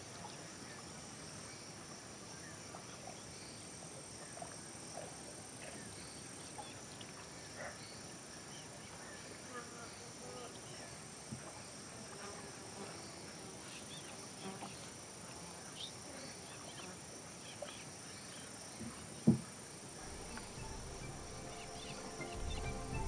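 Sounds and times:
high insect chorus: 0:00.0 - 0:23.0
music: 0:20.0 - 0:23.0.

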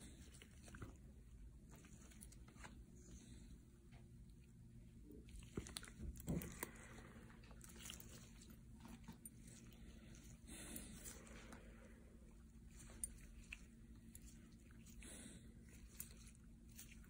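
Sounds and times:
faint room hum: 0:00.0 - 0:17.0.

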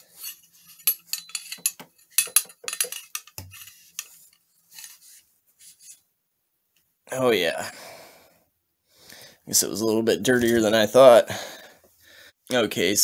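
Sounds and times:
cleaning rod scraping in barrel: 0:00.0 - 0:06.0.

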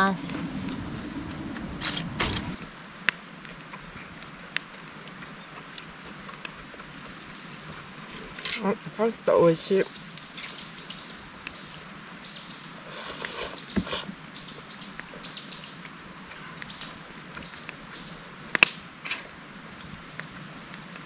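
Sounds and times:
small birds chirping: 0:08.6 - 0:18.4.

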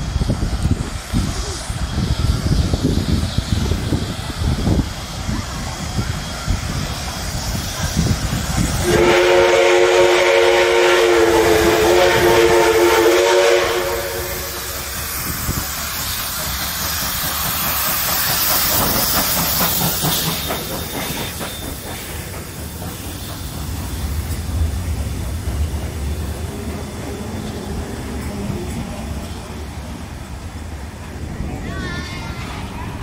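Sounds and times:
steam hissing: 0:00.0 - 0:33.0
steam locomotive whistle: 0:08.8 - 0:15.3.

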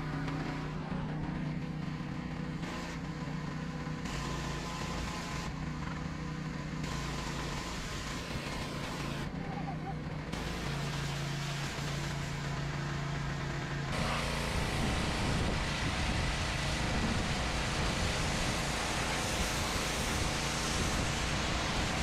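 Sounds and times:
high-pressure water jet hissing: 0:00.0 - 0:09.7, 0:10.3 - 0:22.0
pressure washer engine humming: 0:00.0 - 0:22.0.

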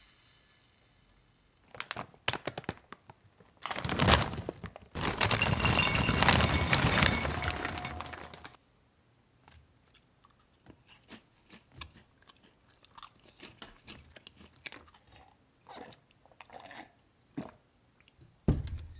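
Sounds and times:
crunching puffed snacks: 0:01.6 - 0:08.6, 0:09.8 - 0:15.4.

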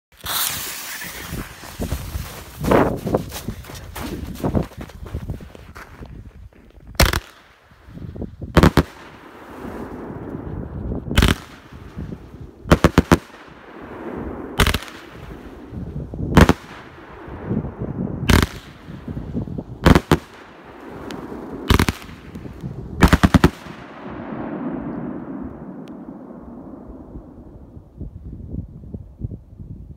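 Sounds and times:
firework bangs: 0:00.2 - 0:03.0, 0:08.5 - 0:26.8
rushing noise of firework shots: 0:00.2 - 0:04.4, 0:07.0 - 0:27.7.

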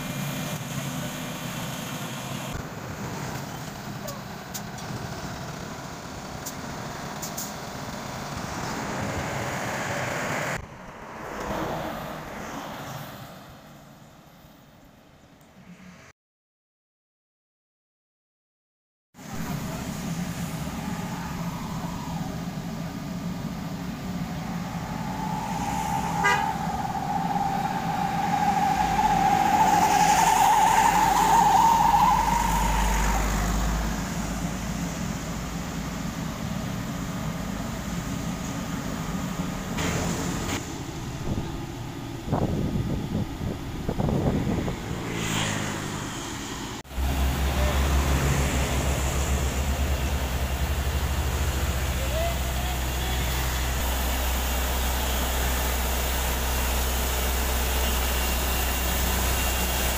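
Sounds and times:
truck engine humming: 0:19.2 - 0:44.9, 0:45.9 - 0:59.9
wavering tone: 0:20.4 - 0:33.9.

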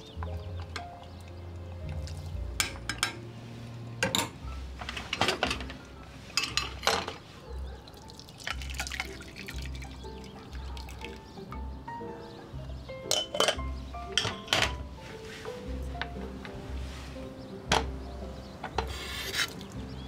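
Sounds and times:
liquid pouring through strainer: 0:08.0 - 0:09.9
metal ladle clinking on saucepan: 0:13.1 - 0:14.7.

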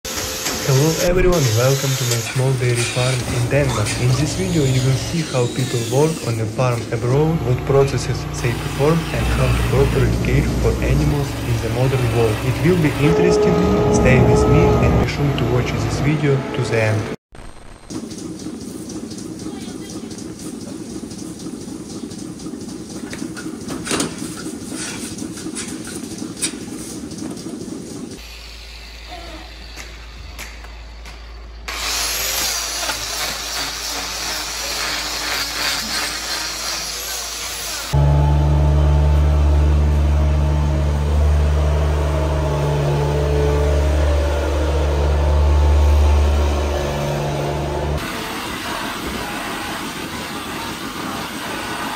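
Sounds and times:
milking machinery running: 0:00.1 - 0:17.0, 0:17.9 - 0:51.9
small engine droning: 0:03.1 - 0:16.2, 0:37.9 - 0:50.2.

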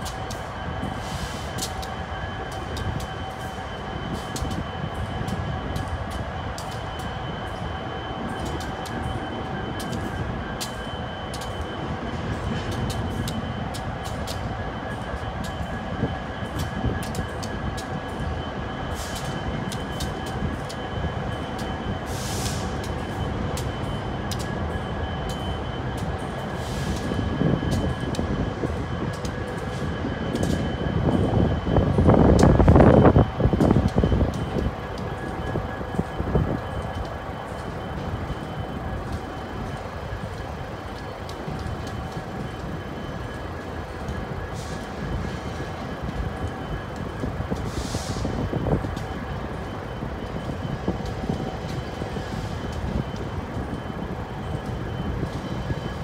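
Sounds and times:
freight train cars rumbling: 0:00.0 - 0:56.0
sharp clicks of train wheels: 0:00.0 - 0:56.0.

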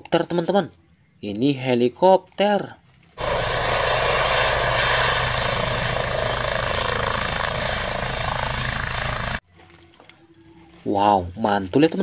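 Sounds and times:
helicopter hovering: 0:03.2 - 0:09.4.

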